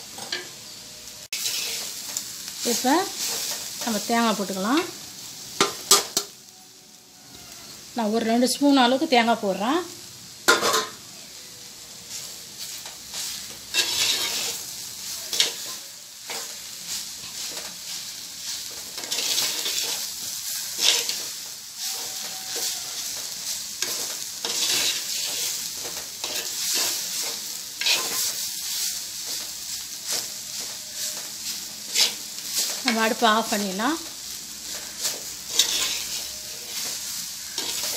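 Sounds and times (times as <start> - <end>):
food sizzling: 0.0 - 37.9.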